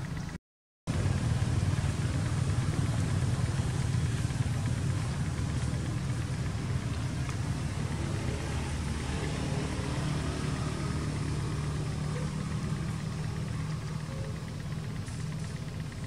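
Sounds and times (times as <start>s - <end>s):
low engine rumble: 0.0s - 16.0s.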